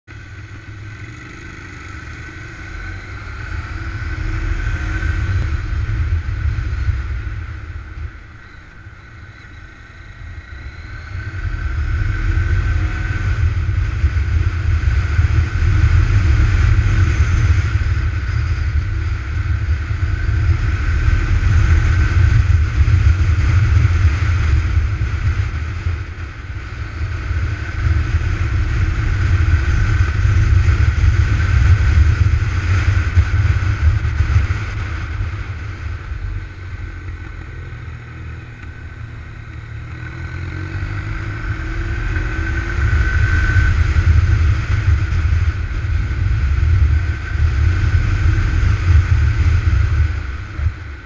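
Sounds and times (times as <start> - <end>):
scooter engine running: 0.1 - 51.0.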